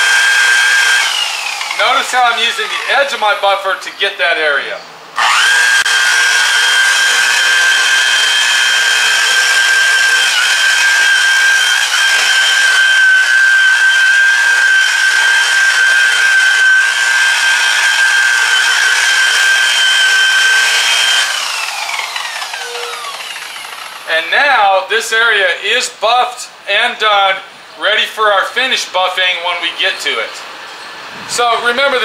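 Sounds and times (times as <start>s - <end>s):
rotary buffer whining: 0.0s - 3.5s, 5.2s - 24.3s.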